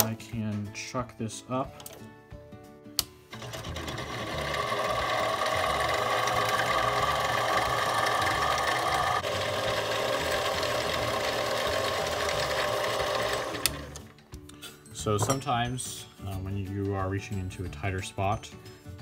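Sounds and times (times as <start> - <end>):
lathe motor whine: 3.4 - 14.0
file on spinning metal: 3.6 - 13.5.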